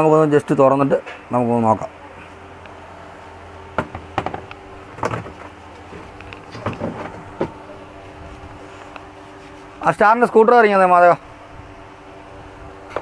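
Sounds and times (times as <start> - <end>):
steady low hum: 0.0 - 13.0
plastic parts and tools knocking: 3.8 - 5.5.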